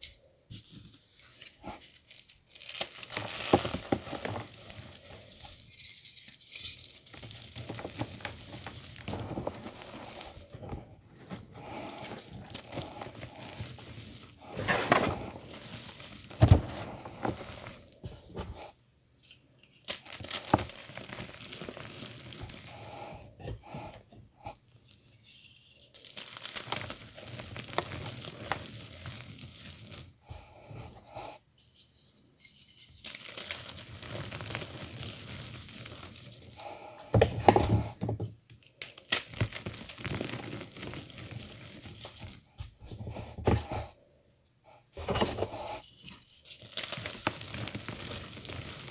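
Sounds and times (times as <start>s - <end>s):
powder sifting through fingers: 0.6s - 18.8s, 19.8s - 23.2s, 24.9s - 31.0s, 32.2s - 37.0s, 39.0s - 44.0s, 45.2s - 48.9s
chalk crunching by hand: 1.6s - 5.7s, 6.9s - 10.5s, 19.9s - 23.0s, 45.6s - 48.9s.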